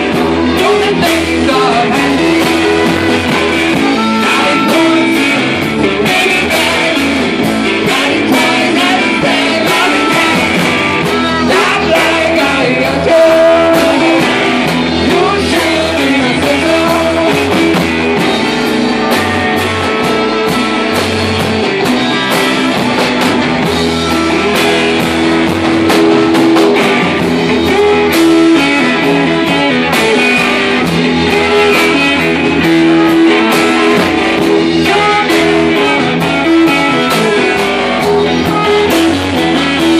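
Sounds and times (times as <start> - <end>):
person singing: 0.0 - 23.0, 23.6 - 39.9
drum kit: 0.0 - 39.9
electric guitar: 0.0 - 39.9.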